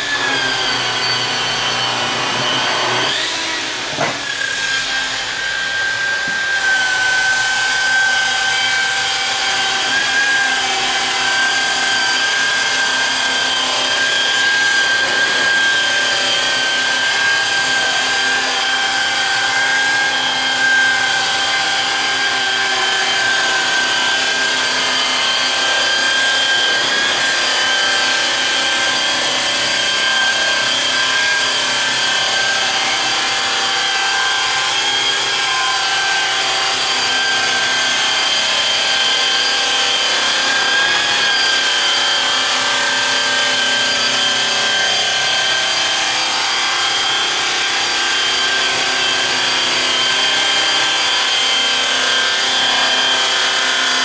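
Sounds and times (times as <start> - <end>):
polisher motor whine: 0.0 - 54.0.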